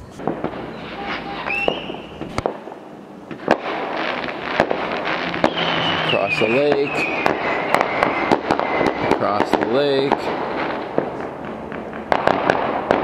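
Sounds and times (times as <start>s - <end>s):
fireworks bangs: 0.0s - 13.0s
fireworks crackling: 0.0s - 13.0s
high firework whistle: 0.6s - 2.4s, 3.9s - 10.1s.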